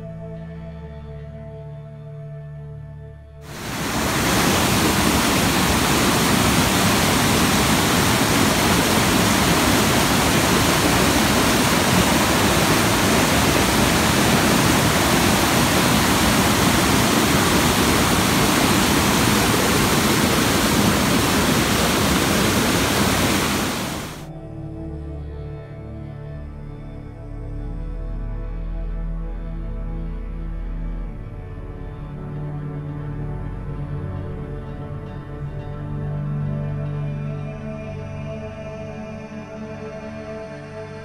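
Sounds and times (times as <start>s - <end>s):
soft ambient music: 0.0s - 41.0s
whitewater rushing over rocks: 3.5s - 24.2s.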